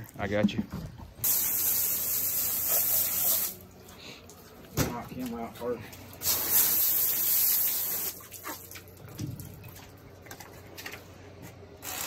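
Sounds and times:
hose spraying water: 1.2 - 3.6, 6.2 - 8.6.

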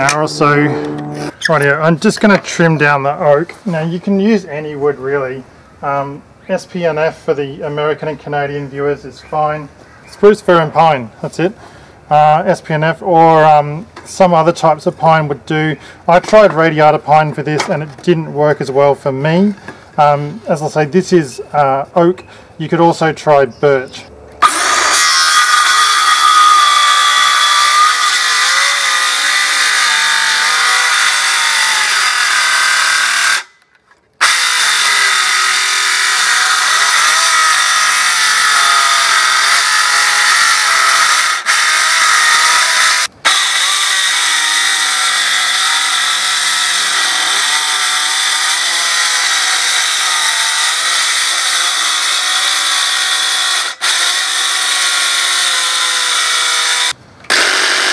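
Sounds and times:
circular saw cutting wood: 0.0 - 2.4, 24.4 - 33.6, 34.2 - 57.9.

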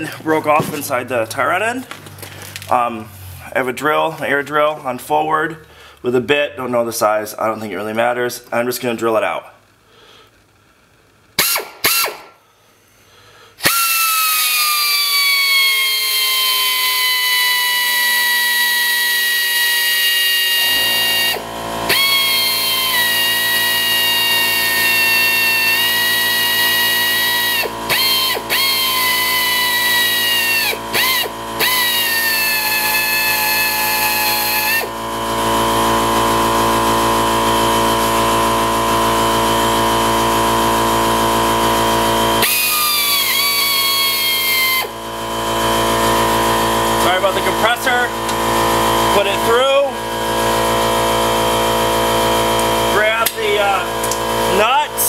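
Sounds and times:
air drill trigger blips: 11.4 - 12.4, 13.6 - 35.1, 42.4 - 47.5
air drill whining: 11.4 - 12.4, 13.5 - 55.0.

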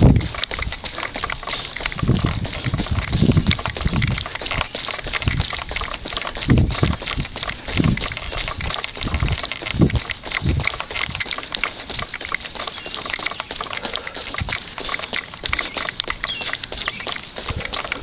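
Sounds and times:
heavy low thumps: 0.0 - 0.4, 2.0 - 4.2, 6.4 - 8.2
footsteps on wet asphalt: 0.0 - 18.0
man breathing: 13.7 - 14.9, 16.7 - 18.0.

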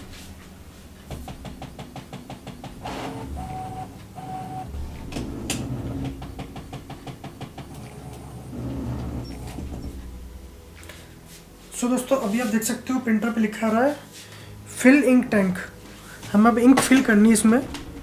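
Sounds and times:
printer motor clicking: 1.8 - 9.8
low hum: 2.7 - 11.6.

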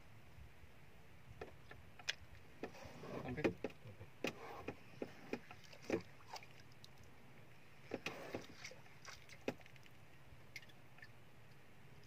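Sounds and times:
faint steady background noise: 0.0 - 12.0
water slapping boat hull: 1.4 - 7.1, 7.8 - 11.2.

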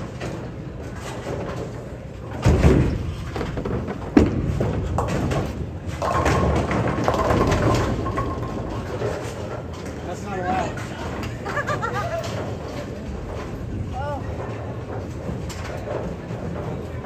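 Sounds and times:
bowling ball thud and rumble: 0.0 - 10.0.

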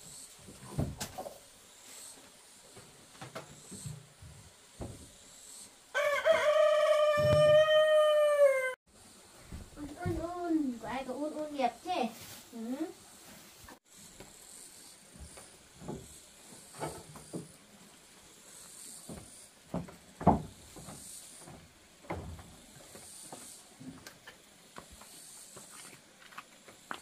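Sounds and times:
handling knocks and rustles: 0.4 - 1.5.

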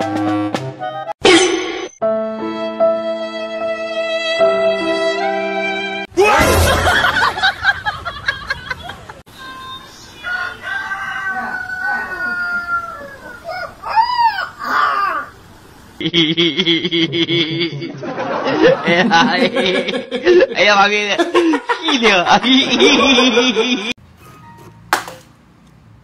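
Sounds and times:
puppy howling: 11.3 - 15.4.

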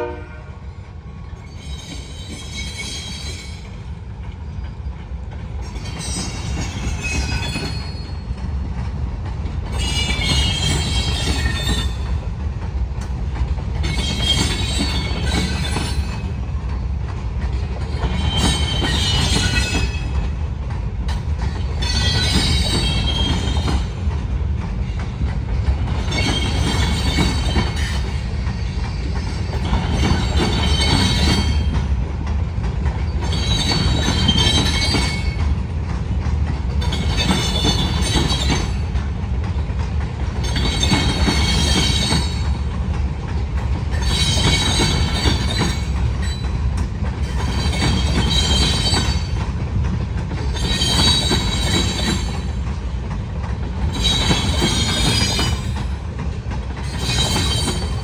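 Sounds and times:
train wheels rumbling on rail: 0.0 - 58.0
metal-on-metal squeal: 1.4 - 3.6.

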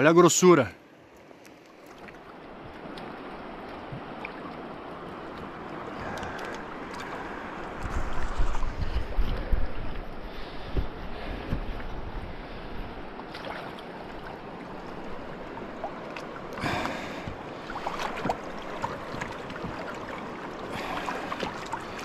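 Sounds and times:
fast river rushing: 2.1 - 22.0
bursts of water noise: 13.2 - 22.0.

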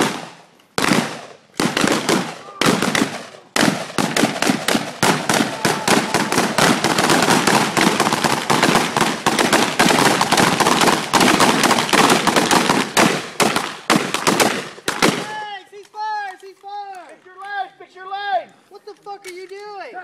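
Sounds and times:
rapid rifle gunfire: 0.0 - 15.4.

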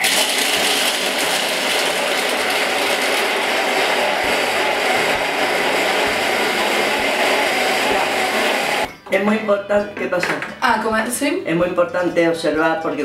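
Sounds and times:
food processor grinding nuts: 0.0 - 8.9.

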